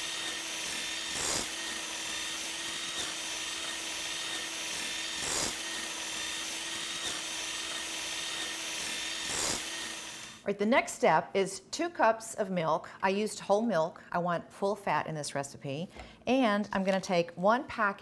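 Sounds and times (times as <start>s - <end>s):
hand mixer motor whining: 0.0s - 10.4s
whisk whipping cream: 0.0s - 10.4s.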